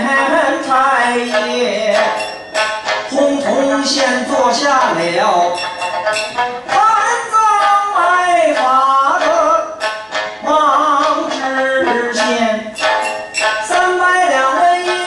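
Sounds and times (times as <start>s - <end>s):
metal plates clacking: 0.0s - 15.0s
plucked string accompaniment: 0.0s - 15.0s
man singing long held notes: 10.4s - 12.8s.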